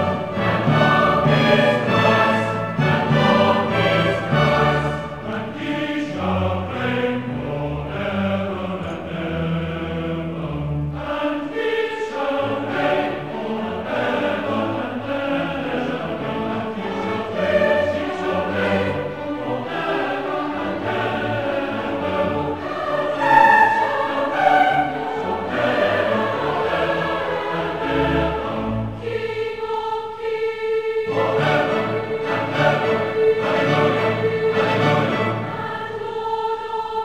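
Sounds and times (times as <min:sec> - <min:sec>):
orchestral accompaniment: 0:00.0 - 0:29.8, 0:31.1 - 0:36.4
large choir singing: 0:00.0 - 0:37.0.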